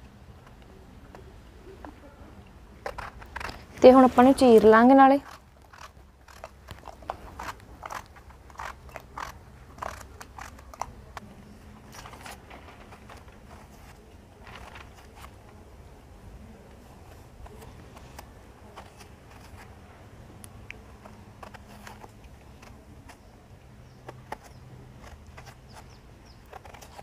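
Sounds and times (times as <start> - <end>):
faint low hum: 0.0 - 27.0
blade scraping eggplant skin: 2.8 - 11.2, 21.0 - 23.3, 24.0 - 27.0.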